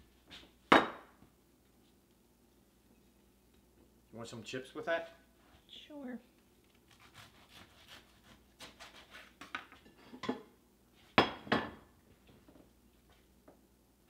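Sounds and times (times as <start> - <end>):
knife cutting on wooden board: 6.9 - 9.5.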